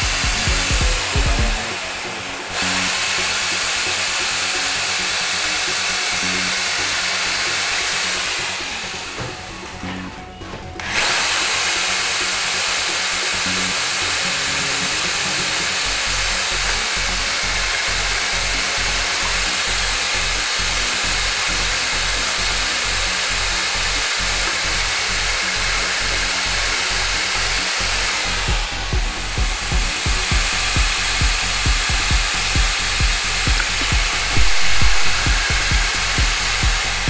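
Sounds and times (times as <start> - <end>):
electric drill boring into board: 0.0 - 10.1, 10.8 - 37.0
low regular pulse: 28.5 - 37.0.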